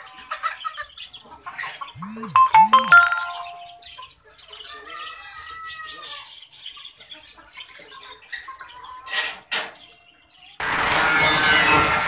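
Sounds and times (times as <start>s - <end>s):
birds chirping: 0.0s - 9.1s.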